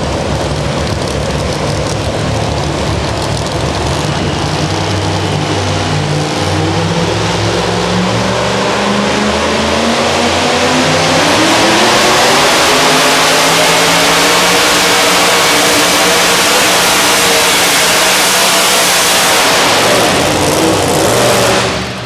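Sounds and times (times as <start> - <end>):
loud truck engine idling: 0.0 - 8.3, 19.4 - 22.0.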